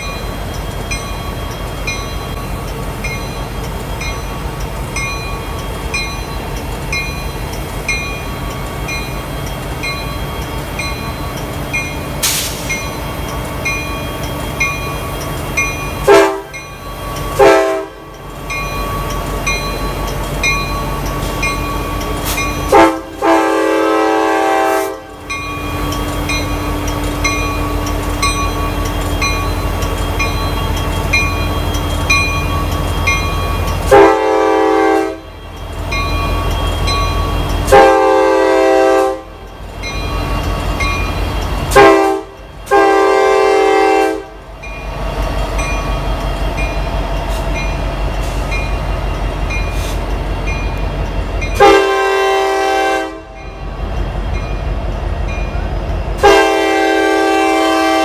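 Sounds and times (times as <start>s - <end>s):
locomotive air horn blasts: 16.0s - 16.6s, 17.4s - 18.0s, 22.7s - 25.1s, 33.9s - 35.3s, 37.7s - 39.3s, 41.7s - 44.4s, 51.6s - 53.4s, 56.2s - 58.0s.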